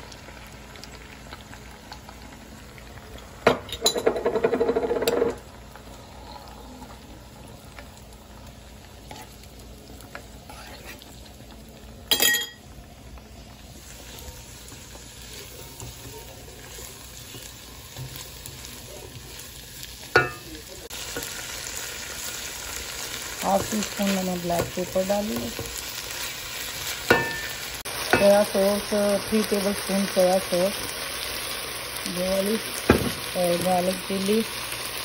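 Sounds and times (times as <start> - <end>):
eggs sizzling in a pan: 0.0 - 35.0
metal spoon scraping pan: 10.5 - 11.1.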